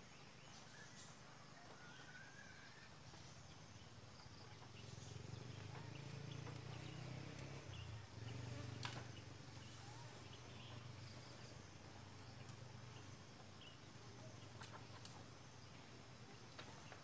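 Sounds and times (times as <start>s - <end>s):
faint bird chirps: 0.0s - 17.0s
insect buzzing: 4.7s - 16.4s.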